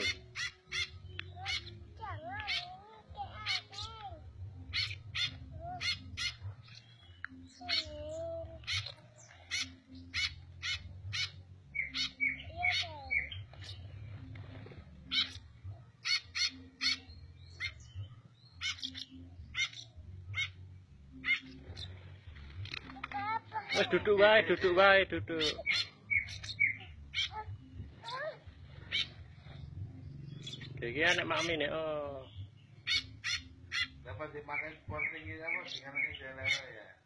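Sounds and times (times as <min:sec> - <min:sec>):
parrot chirps and squeaks: 0:00.0 - 0:01.8, 0:02.4 - 0:02.8, 0:04.7 - 0:08.0, 0:08.6 - 0:13.9, 0:15.1 - 0:20.6, 0:21.2 - 0:22.0, 0:25.4 - 0:29.6, 0:30.3 - 0:31.6, 0:32.8 - 0:36.8.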